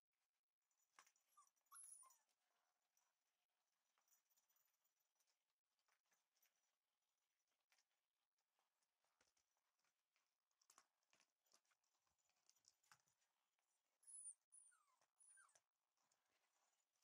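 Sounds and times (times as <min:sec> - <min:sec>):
puppy whimpering: 0:01.3 - 0:02.3, 0:14.0 - 0:15.7
puppy paws pattering on floor: 0:08.5 - 0:17.0.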